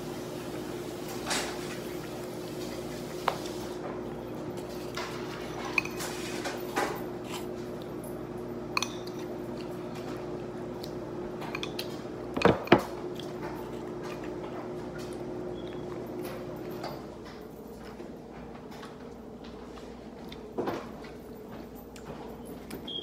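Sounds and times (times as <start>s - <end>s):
dishes clinking on countertop: 5.0s - 7.0s.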